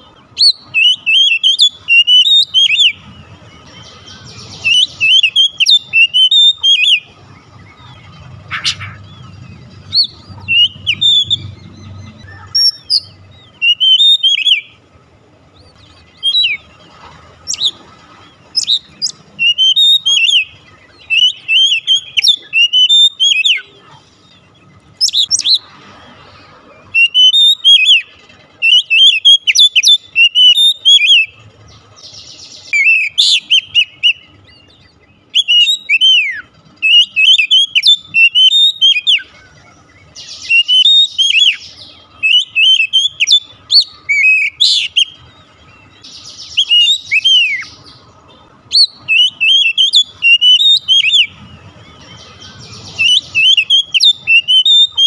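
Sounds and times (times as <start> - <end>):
magpie-robin singing whistled phrases: 0.0 - 14.9, 15.5 - 25.7, 26.9 - 55.0
harsh scratchy bird notes: 0.6 - 14.9.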